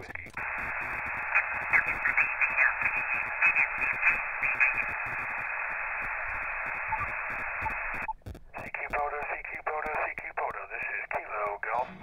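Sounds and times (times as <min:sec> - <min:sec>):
garbled radio voice: 0:00.0 - 0:05.7, 0:08.6 - 0:12.0
radio band hiss: 0:00.0 - 0:12.0.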